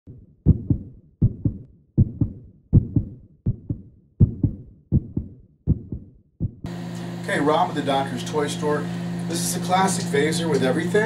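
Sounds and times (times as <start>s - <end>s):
heartbeat thumps: 0.1s - 6.7s.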